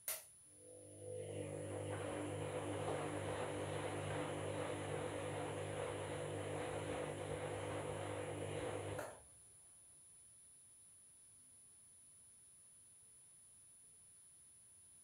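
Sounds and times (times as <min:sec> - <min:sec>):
washing machine motor humming: 0:00.6 - 0:09.2.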